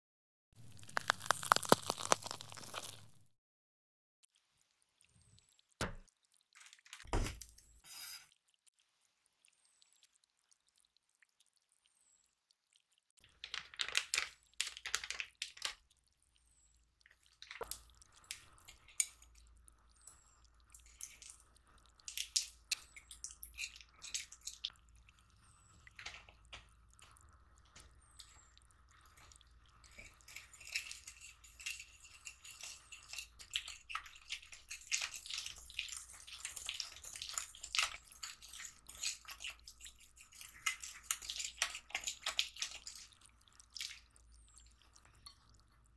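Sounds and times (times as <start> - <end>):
whisk clinking and scraping glass bowl: 29.8 - 43.1.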